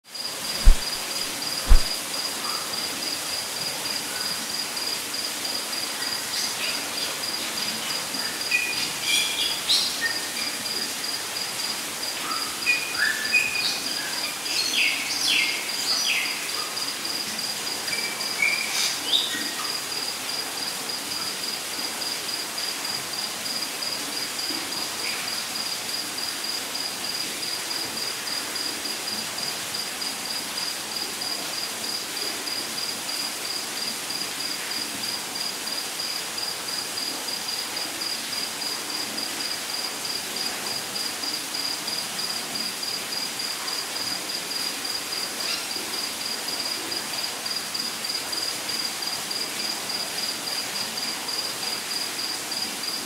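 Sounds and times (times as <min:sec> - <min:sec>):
cricket chirping: 0:00.1 - 0:53.0
light rain hiss: 0:00.1 - 0:53.0
sharp thump: 0:00.6 - 0:02.0.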